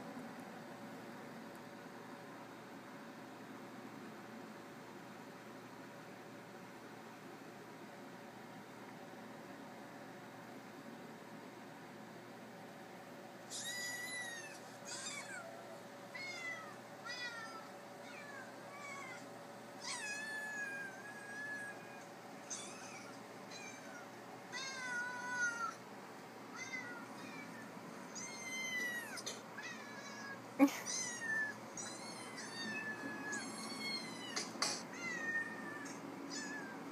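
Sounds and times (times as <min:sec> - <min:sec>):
cats meowing through a speaker: 0:28.2 - 0:36.9.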